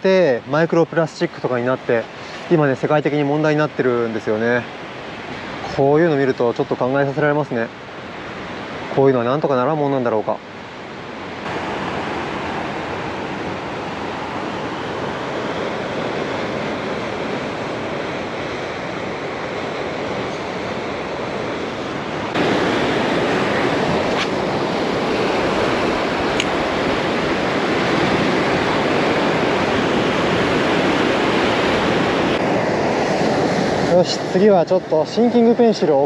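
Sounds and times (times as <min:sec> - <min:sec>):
surf breaking on rocks: 0:11.4 - 0:36.0.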